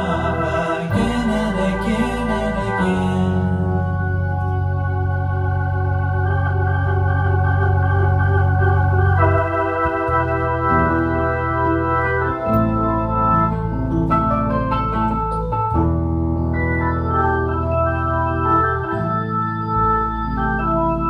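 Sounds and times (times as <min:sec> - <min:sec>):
held bass note: 0:00.0 - 0:21.0
keyboard playing organ-like chords: 0:00.0 - 0:21.0.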